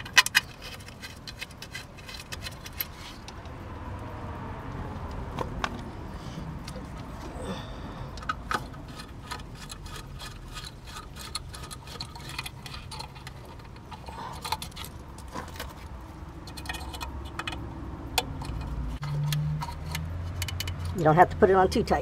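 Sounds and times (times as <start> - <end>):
small metal and plastic clicks: 0.0 - 3.6, 8.1 - 21.0.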